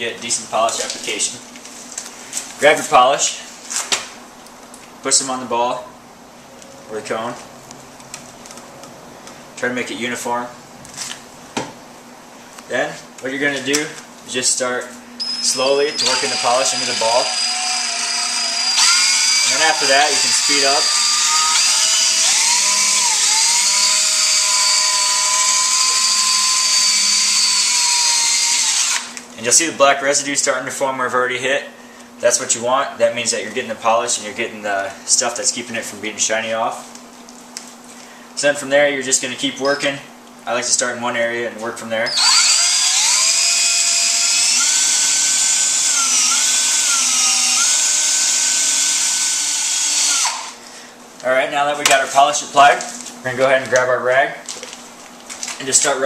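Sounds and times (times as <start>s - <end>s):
cordless drill whining: 15.2s - 29.2s, 42.1s - 50.6s.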